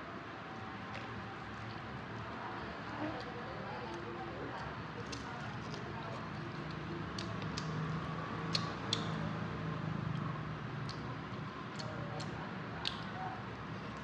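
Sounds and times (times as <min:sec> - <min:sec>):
wet chewing and smacking: 0:04.6 - 0:09.2, 0:09.9 - 0:14.0
sharp mouth clicks: 0:08.4 - 0:09.2.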